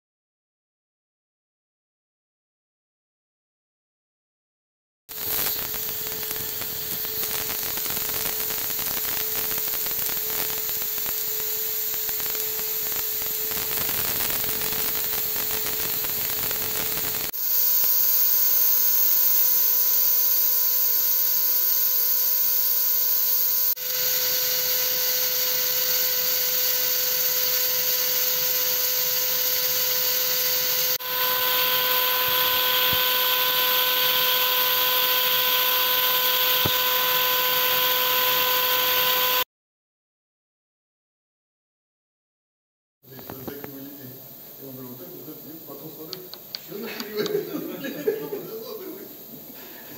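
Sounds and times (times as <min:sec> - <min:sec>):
hiss of metal cutting: 0:05.1 - 0:34.3
spindle whine: 0:05.1 - 0:39.4.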